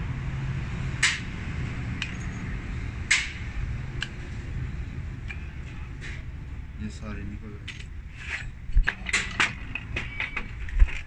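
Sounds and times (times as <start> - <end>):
sharp metallic clicks: 3.1 - 3.4.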